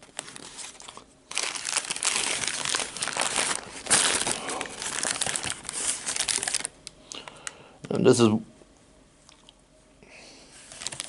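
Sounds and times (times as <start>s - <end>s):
paper wrapper crinkling: 0.0s - 6.8s, 10.6s - 11.0s.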